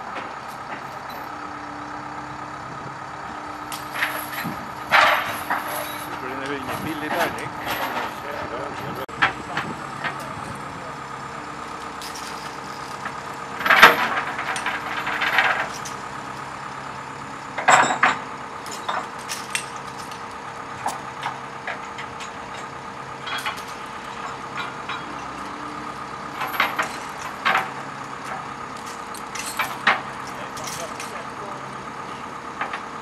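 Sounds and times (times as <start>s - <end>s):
diesel engine idling: 0.0s - 33.0s
sharp clanks and rattles: 0.0s - 33.0s.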